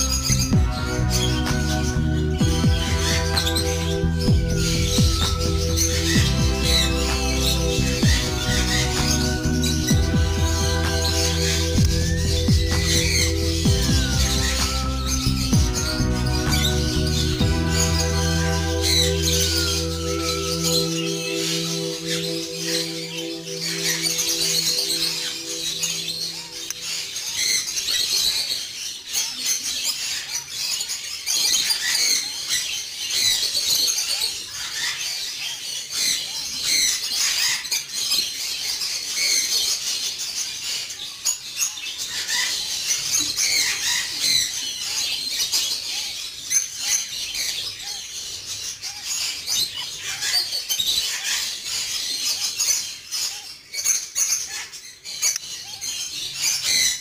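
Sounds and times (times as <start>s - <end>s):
parrot chick begging chirps: 0.0s - 28.1s.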